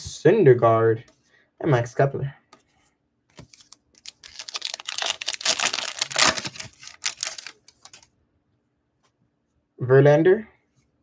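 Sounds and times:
card pack wrapper crinkling: 3.3s - 8.1s.

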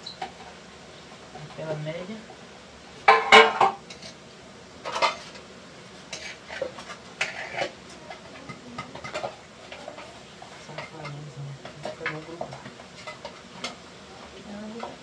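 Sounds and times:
pans and utensils clattering: 3.0s - 4.2s, 4.8s - 5.5s, 6.1s - 13.8s.

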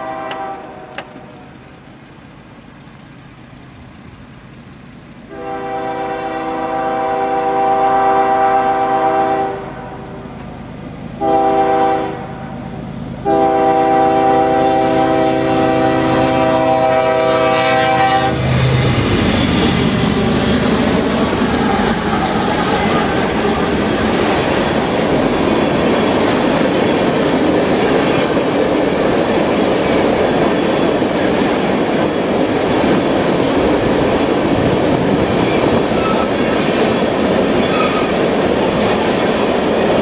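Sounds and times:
locomotive air horn blasts: 0.0s - 1.5s, 5.3s - 10.4s, 11.2s - 18.7s
locomotive engine rumble: 0.0s - 40.0s
train wheel noise: 0.0s - 40.0s.

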